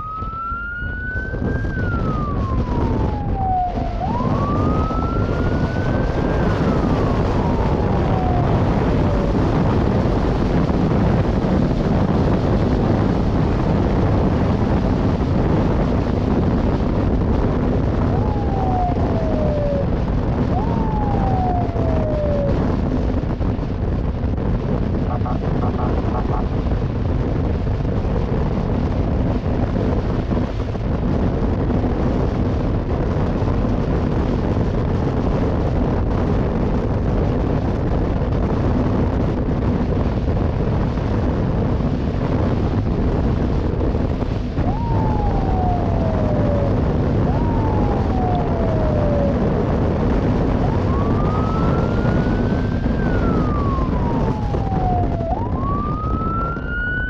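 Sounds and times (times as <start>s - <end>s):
police siren: 0.0s - 23.5s, 24.4s - 26.8s, 41.5s - 57.0s
wind rushing: 0.0s - 57.0s.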